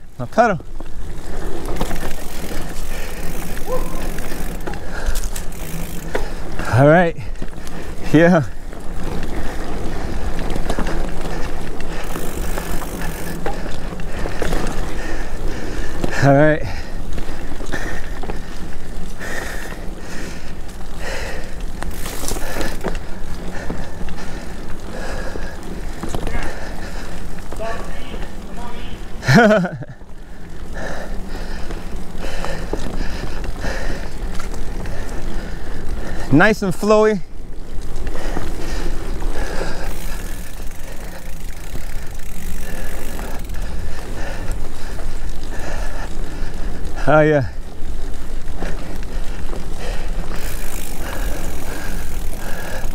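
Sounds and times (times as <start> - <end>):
bike tyres on dirt trail: 0.0 - 52.9
bike knocks and rattles: 39.8 - 43.7, 50.3 - 52.9.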